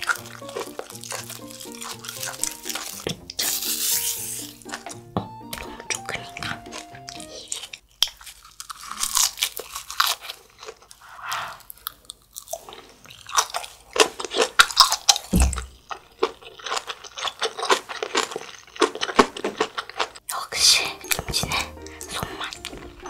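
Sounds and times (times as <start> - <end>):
background tune: 0.0 - 7.8, 20.5 - 23.0
crunching kimchi: 0.0 - 20.2.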